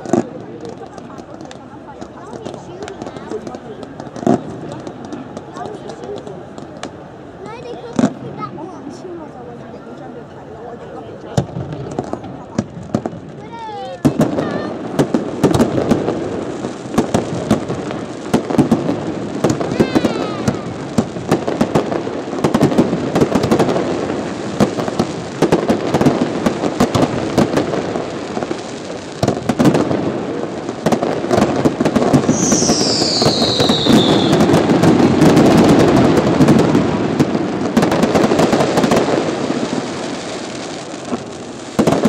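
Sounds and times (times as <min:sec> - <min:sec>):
fireworks crackles and bangs: 0:00.0 - 0:42.0
falling firework whistle: 0:32.1 - 0:35.8.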